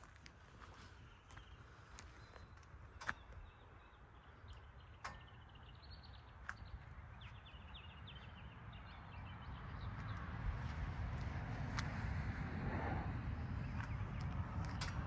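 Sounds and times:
footsteps on pavement: 0:00.0 - 0:03.6, 0:09.8 - 0:12.0, 0:13.6 - 0:15.0
birds chirping: 0:00.4 - 0:10.3.

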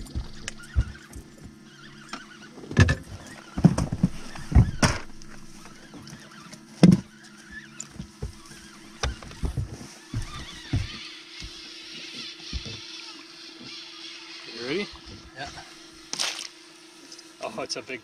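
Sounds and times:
faint low hum: 0:00.0 - 0:12.7
thumps and knocks in a boat: 0:00.0 - 0:12.8.

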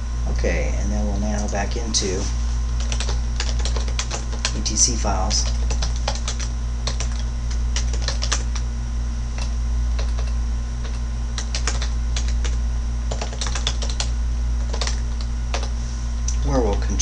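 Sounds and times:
steady low hum: 0:00.0 - 0:17.0
keyboard typing: 0:02.8 - 0:04.8, 0:05.4 - 0:08.6, 0:09.4 - 0:15.7.

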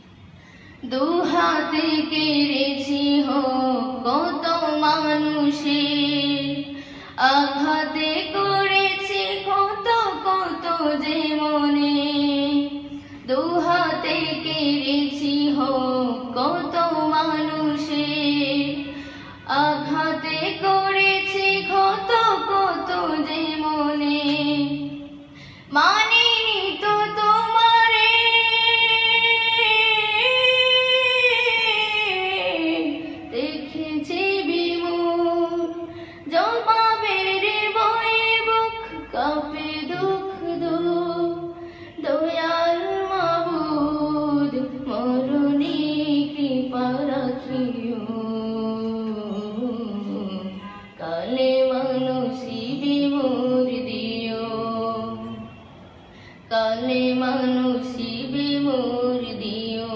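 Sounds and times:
short breaths: 0:00.2 - 0:00.8, 0:06.7 - 0:07.2, 0:18.9 - 0:19.4, 0:25.2 - 0:25.8, 0:35.9 - 0:36.3, 0:41.6 - 0:42.0, 0:55.9 - 0:56.5.

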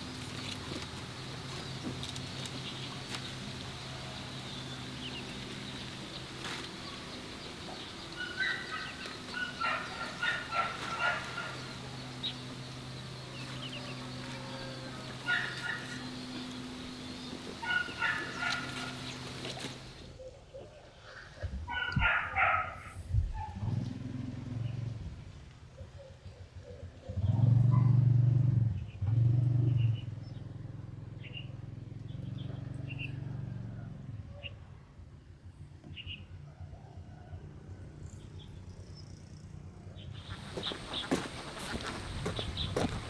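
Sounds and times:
turkeys gobbling: 0:08.1 - 0:11.9, 0:15.1 - 0:16.1, 0:17.4 - 0:21.9.

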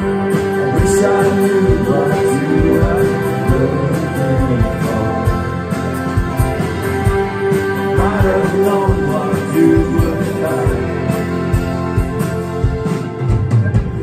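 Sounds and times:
man singing lead vocal: 0:00.0 - 0:06.0, 0:07.8 - 0:11.7
drums: 0:00.0 - 0:14.0
electric and acoustic guitars: 0:00.0 - 0:14.0.

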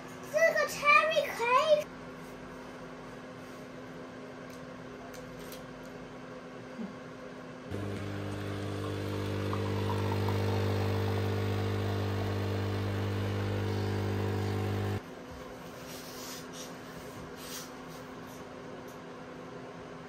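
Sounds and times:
steady machine hum: 0:07.7 - 0:15.0.

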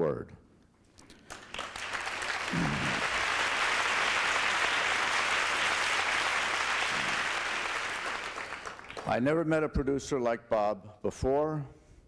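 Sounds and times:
audience applauding: 0:01.1 - 0:09.2.

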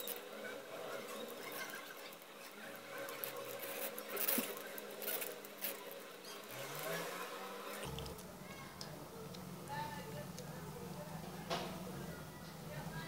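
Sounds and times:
wire rubbing on plastic: 0:00.0 - 0:08.1.

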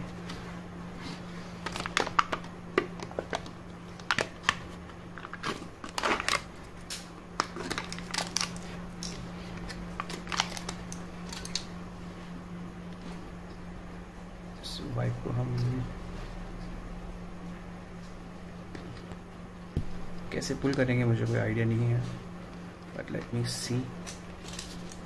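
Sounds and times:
foil seal tearing and crackling: 0:01.6 - 0:02.5, 0:05.2 - 0:08.6, 0:10.0 - 0:11.6.

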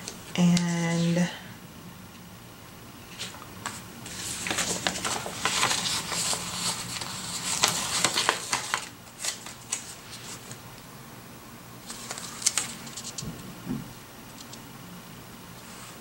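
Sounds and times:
sticker sheet crinkling: 0:03.1 - 0:10.6, 0:11.8 - 0:13.4.

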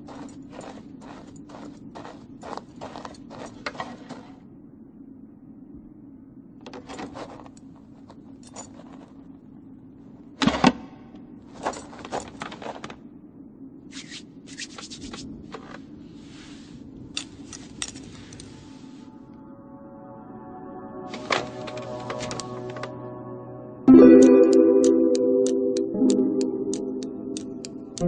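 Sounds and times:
low steady hum: 0:00.0 - 0:28.0
knitting needles clicking: 0:24.2 - 0:28.0.

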